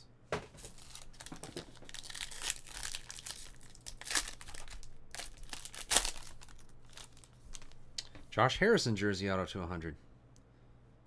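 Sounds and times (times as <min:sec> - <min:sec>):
foil wrapper crinkling and tearing: 0:00.6 - 0:07.8.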